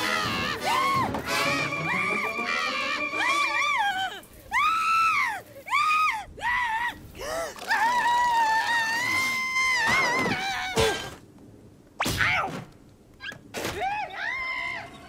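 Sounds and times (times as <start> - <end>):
cartoon character screaming: 0.0 - 5.2.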